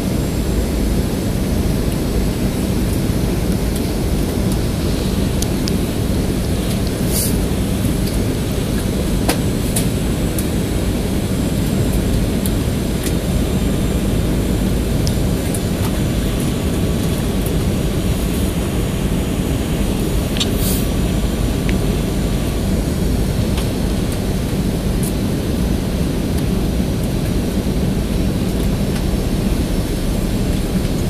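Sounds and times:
airplane cabin rumble: 0.0s - 31.0s.

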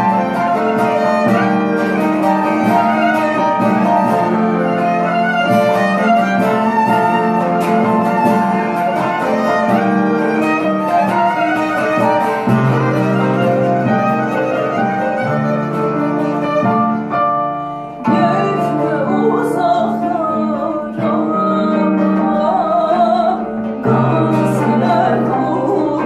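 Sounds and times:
folk ensemble playing: 0.0s - 26.0s
woman singing: 18.0s - 26.0s.

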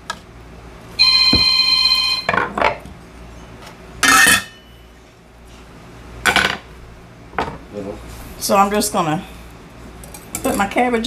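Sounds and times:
ringing tone: 1.0s - 2.4s.

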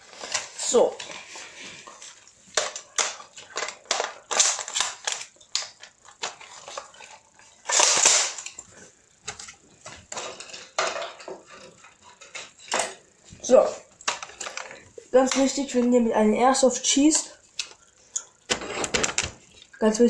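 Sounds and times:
plastic gun clicks and rattles: 2.6s - 6.9s, 7.6s - 8.6s.

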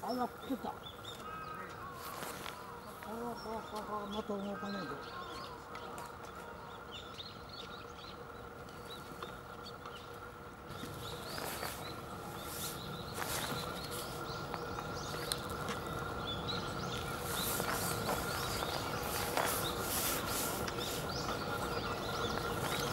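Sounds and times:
small birds chirping: 0.0s - 22.9s
steady low hum: 0.0s - 22.9s
clicks and crackles: 13.5s - 15.9s.

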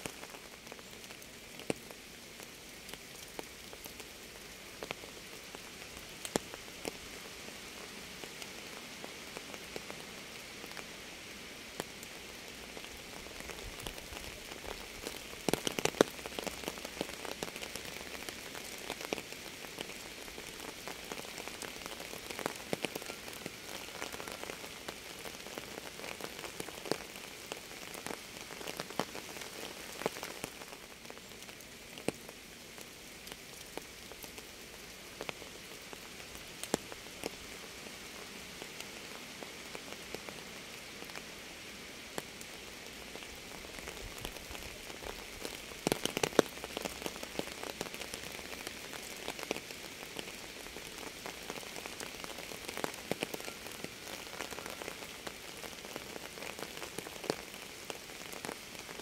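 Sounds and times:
rain falling: 0.0s - 59.0s
close raindrop impacts: 12.8s - 37.4s, 43.2s - 59.0s.

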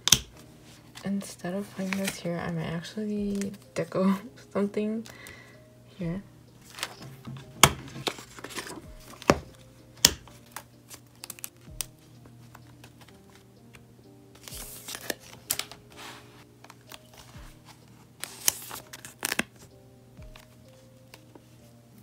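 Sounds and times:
soft background music: 0.0s - 22.0s
paper and plastic rustling: 0.6s - 2.5s, 3.2s - 3.7s, 6.6s - 9.6s, 14.4s - 19.7s.

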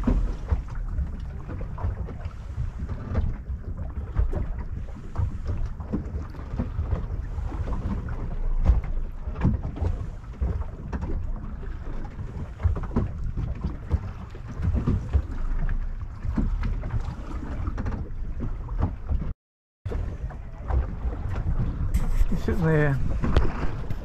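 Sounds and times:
water slapping boat hull: 0.0s - 24.0s
wind buffeting microphone: 19.9s - 24.0s.

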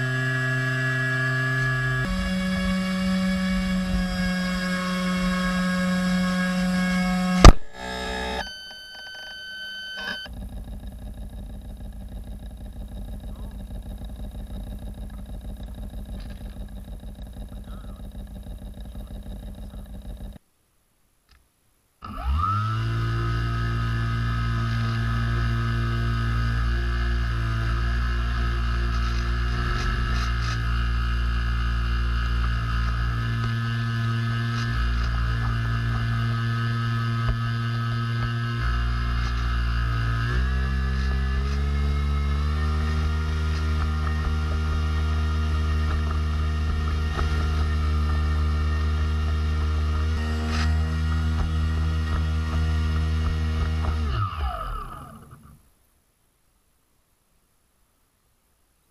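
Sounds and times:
airboat motor and propeller: 0.0s - 8.4s, 10.0s - 20.4s, 22.0s - 55.5s.

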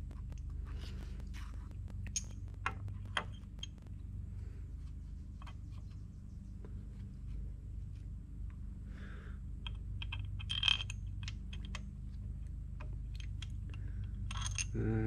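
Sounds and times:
small parts and tools clicking: 0.0s - 4.0s, 9.6s - 14.8s
steady low hum: 0.0s - 15.0s.

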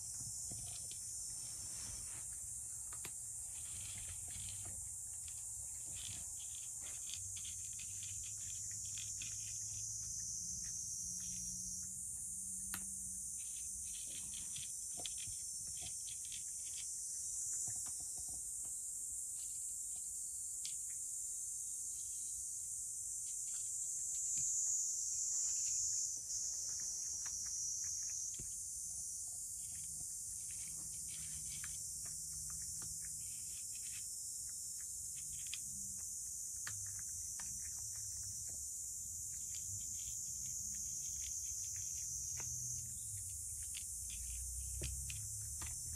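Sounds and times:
steady high-pitched hiss: 0.0s - 45.9s
cat chewing: 26.3s - 45.7s.

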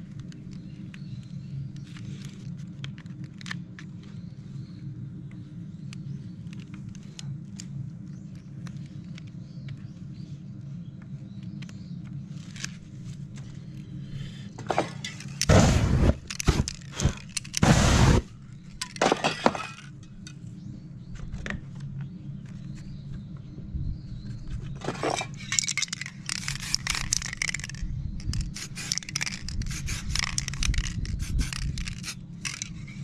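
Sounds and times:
steady low hum: 0.0s - 33.0s
spray paint can hissing: 17.6s - 18.3s, 26.3s - 27.6s, 28.3s - 32.6s.

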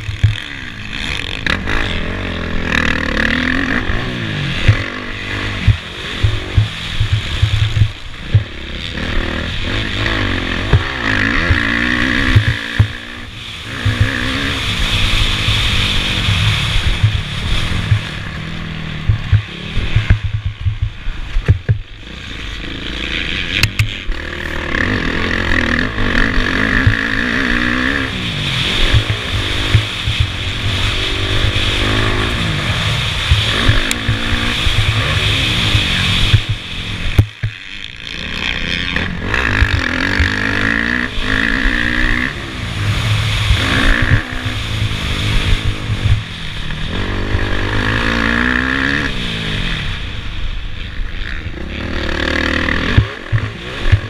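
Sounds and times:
sharp knocks: 0.0s - 0.5s, 5.6s - 8.6s, 10.6s - 13.1s, 13.8s - 14.3s, 19.0s - 21.9s, 35.7s - 37.6s
motocross bike engine revving: 0.0s - 54.0s
wind rush: 11.3s - 21.8s, 24.1s - 37.4s.

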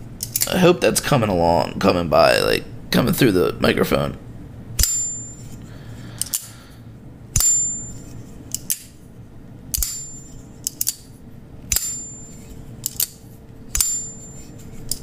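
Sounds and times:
folding knife blade ting: 11.7s - 15.0s.

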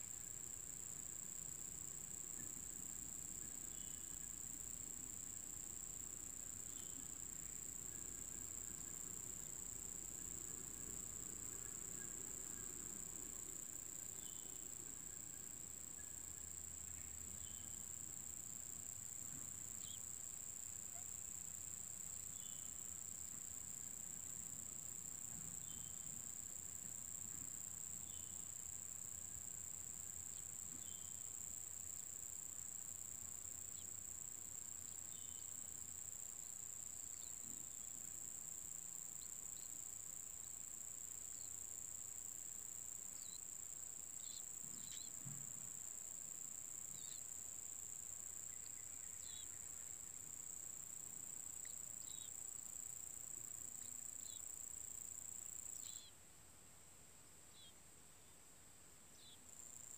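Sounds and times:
insect trilling: 48.4s - 50.3s, 55.6s - 56.1s.

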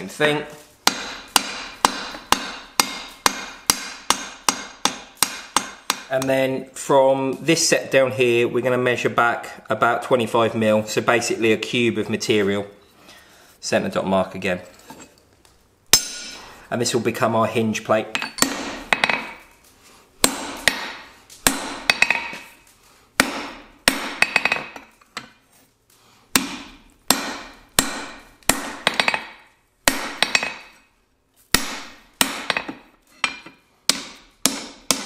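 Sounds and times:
hammer striking steel on anvil: 0.9s - 6.3s, 15.9s - 16.5s, 18.1s - 19.4s, 20.2s - 22.5s, 23.2s - 24.9s, 26.4s - 30.8s, 31.6s - 35.0s.

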